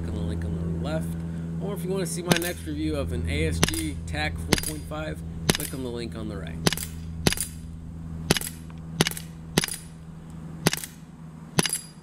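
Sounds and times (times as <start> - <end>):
low hum: 0.0 - 12.0
air pistol shots: 2.3 - 2.6, 3.6 - 3.9, 4.5 - 4.8, 5.4 - 5.8, 6.6 - 7.6, 8.3 - 10.0, 10.6 - 11.0, 11.6 - 12.0.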